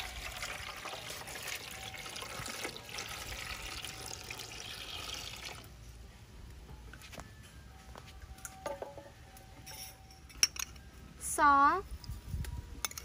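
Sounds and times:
water pouring into a pot: 0:00.0 - 0:05.7.

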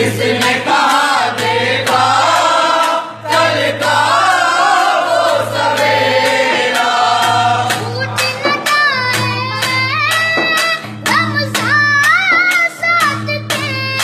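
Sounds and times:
chorus singing devotional song: 0:00.0 - 0:08.7
regular beat: 0:00.0 - 0:14.0.

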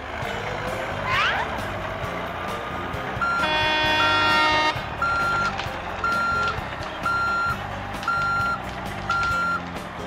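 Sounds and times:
low engine drone: 0:00.0 - 0:10.0
truck reversing alarm beeping: 0:03.1 - 0:09.8.

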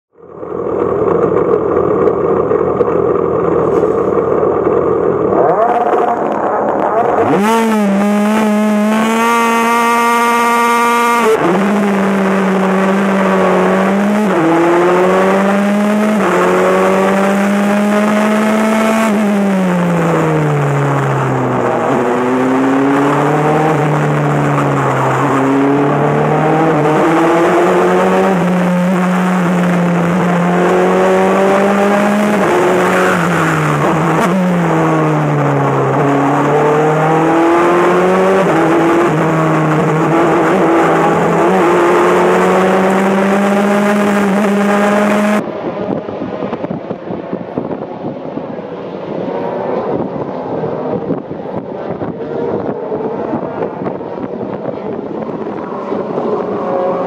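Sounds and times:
race car engine revving: 0:00.3 - 0:57.0.

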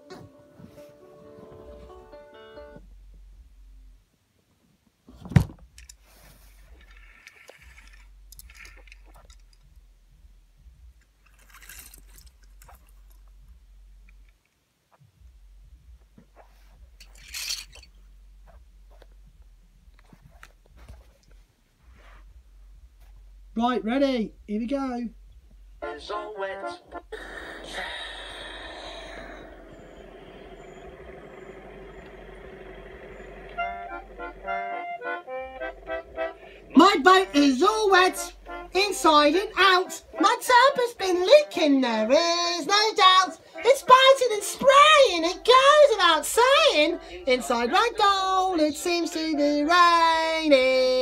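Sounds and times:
accordion-like chords: 0:00.0 - 0:03.2, 0:25.8 - 0:27.1, 0:27.8 - 0:50.5
low steady hum: 0:01.5 - 0:04.2, 0:05.1 - 0:40.6
rustling and handling noise: 0:04.5 - 0:23.4
steady hum: 0:26.9 - 0:40.2.

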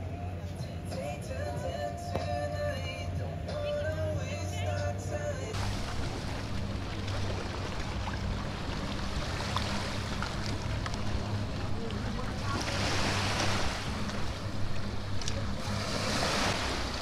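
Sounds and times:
boat engine humming: 0:00.0 - 0:17.0
waves washing on shore: 0:05.6 - 0:17.0.

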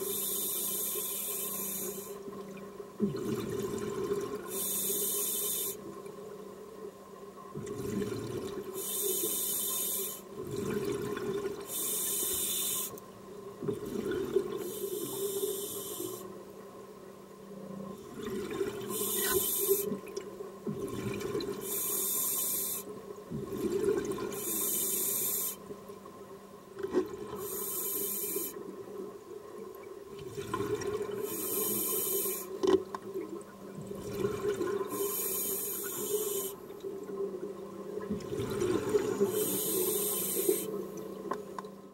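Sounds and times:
regulator inhale hiss: 0:00.0 - 0:02.2, 0:04.5 - 0:05.9, 0:08.8 - 0:10.3, 0:11.7 - 0:13.0, 0:14.6 - 0:16.4, 0:18.9 - 0:19.9, 0:21.6 - 0:22.9, 0:24.3 - 0:25.6, 0:27.4 - 0:28.6, 0:31.2 - 0:32.6, 0:34.9 - 0:36.7, 0:39.1 - 0:40.8.

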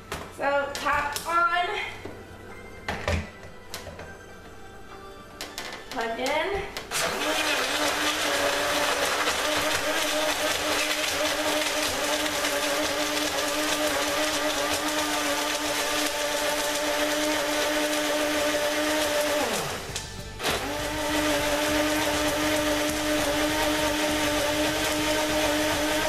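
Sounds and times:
blender whining: 0:06.8 - 0:26.0
ice grinding clatter: 0:06.9 - 0:26.0.

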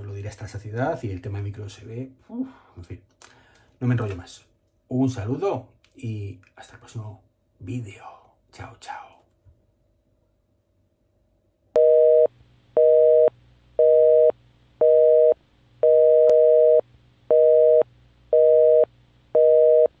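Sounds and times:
telephone busy signal beeps: 0:11.8 - 0:19.9.

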